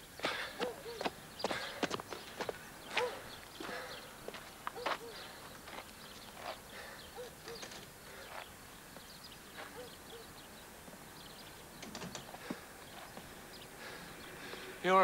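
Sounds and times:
bird cooing: 0:00.4 - 0:02.0, 0:02.8 - 0:05.7, 0:06.4 - 0:08.5, 0:09.5 - 0:10.6.

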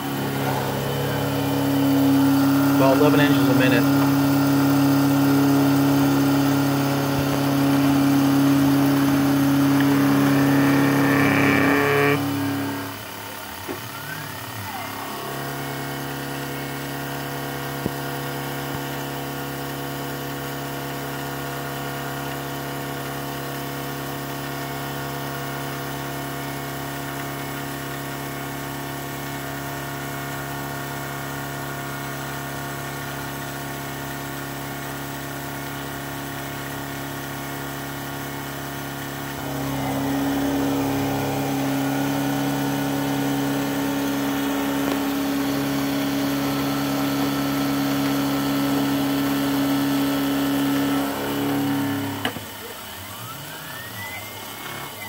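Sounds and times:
milling machine cutting metal: 0:00.0 - 0:23.4, 0:35.0 - 0:55.0.

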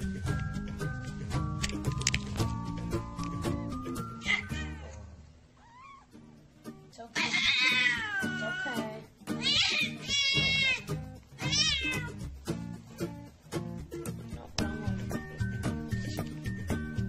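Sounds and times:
background music: 0:00.0 - 0:17.0
cat crying: 0:04.2 - 0:04.9, 0:05.6 - 0:06.2, 0:07.2 - 0:12.2.

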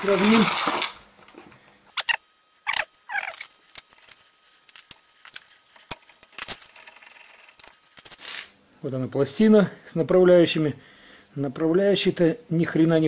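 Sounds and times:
falling squeak: 0:02.0 - 0:03.5.

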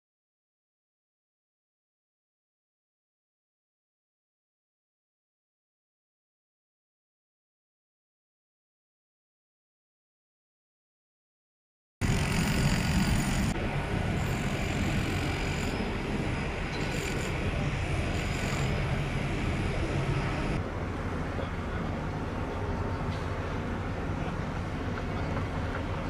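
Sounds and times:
low harbour rumble: 0:12.0 - 0:26.0.

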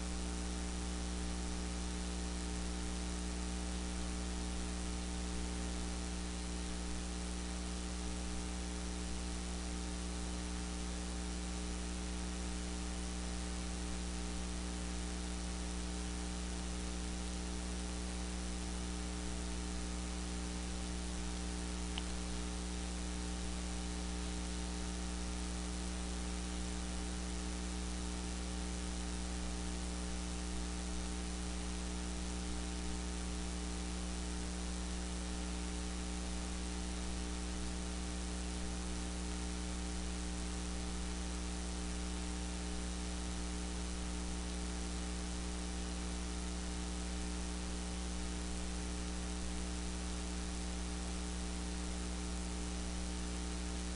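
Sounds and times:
electrical mains hum: 0:00.0 - 0:53.9
constant hiss: 0:21.1 - 0:24.9.

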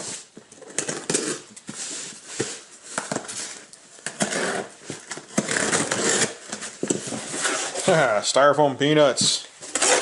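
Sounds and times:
knife slitting packing tape: 0:00.2 - 0:01.6, 0:02.5 - 0:06.6, 0:09.7 - 0:10.0.

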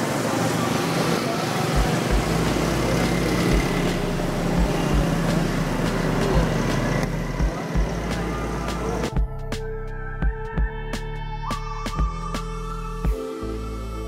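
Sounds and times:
cars and motorcycles passing: 0:00.0 - 0:09.2.

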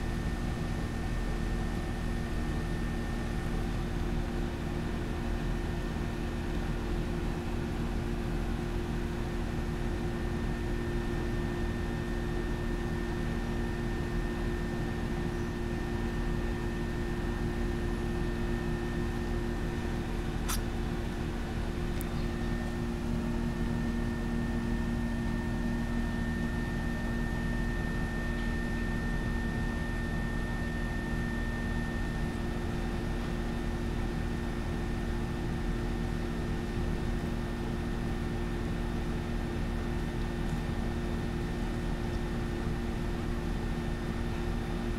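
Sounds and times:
mechanical hum: 0:00.0 - 0:44.9.

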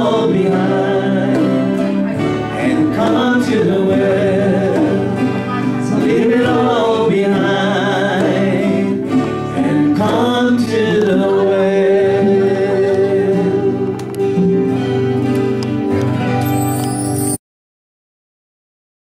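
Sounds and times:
voices singing: 0:00.0 - 0:14.7
acoustic guitar: 0:00.0 - 0:17.4.

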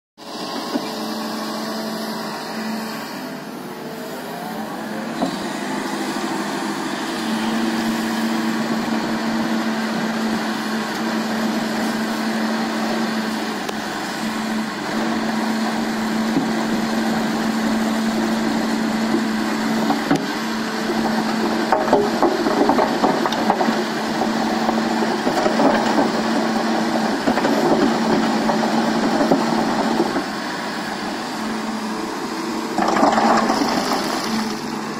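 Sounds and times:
excavator diesel engine drone: 0:00.2 - 0:34.9
soil and stones rattling: 0:15.4 - 0:34.9.

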